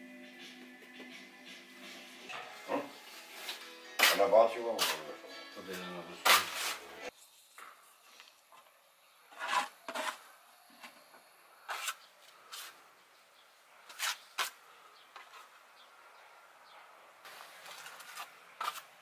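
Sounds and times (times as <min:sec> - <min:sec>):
scraping and rubbing: 0:06.2 - 0:06.9, 0:09.3 - 0:11.0, 0:11.7 - 0:12.8, 0:13.9 - 0:14.6, 0:17.3 - 0:19.0.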